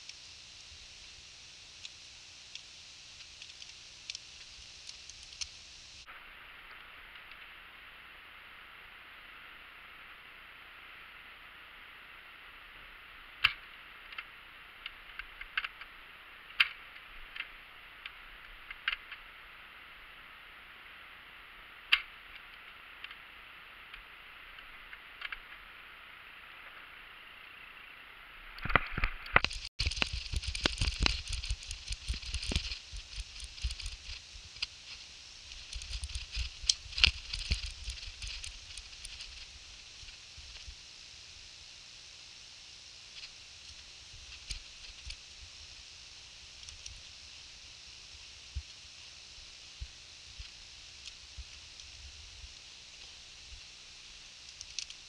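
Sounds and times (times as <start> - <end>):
light clicks and ticks: 1.8 - 5.6, 13.4 - 15.9, 16.5 - 19.3, 21.9 - 23.2, 28.6 - 40.8, 46.5 - 47.2, 49.8 - 55.0
twigs snapping: 28.6 - 39.5.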